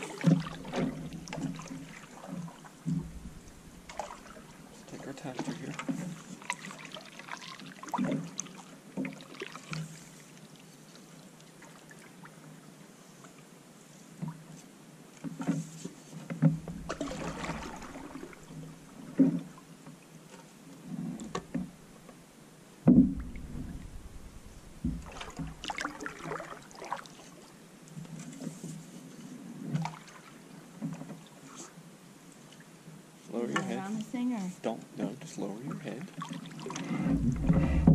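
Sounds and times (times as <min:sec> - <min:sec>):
paddle strokes and water splashes: 0:00.0 - 0:37.9
knocks against canoe hull: 0:22.8 - 0:25.8.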